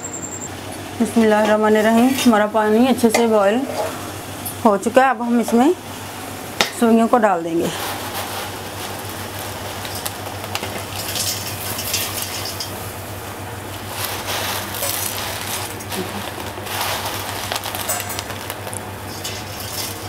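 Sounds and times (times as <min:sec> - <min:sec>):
water boiling in a pot: 0:00.2 - 0:20.0
crackles and splashes: 0:07.8 - 0:20.0.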